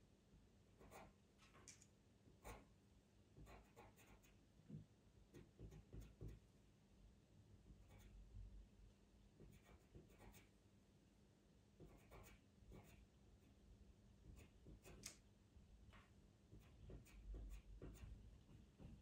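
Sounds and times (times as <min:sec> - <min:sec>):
pastel pencil scratching on paper: 0:00.8 - 0:01.2, 0:02.4 - 0:02.7, 0:03.4 - 0:04.4, 0:05.3 - 0:06.4, 0:07.8 - 0:08.2, 0:09.4 - 0:10.5, 0:11.8 - 0:13.1, 0:14.2 - 0:15.1, 0:16.5 - 0:18.3.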